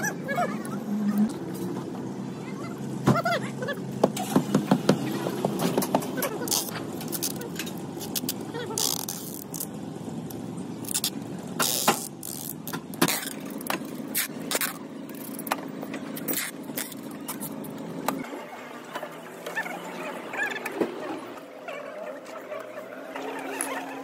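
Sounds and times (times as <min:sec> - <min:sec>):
low mechanical hum: 0:00.0 - 0:24.0.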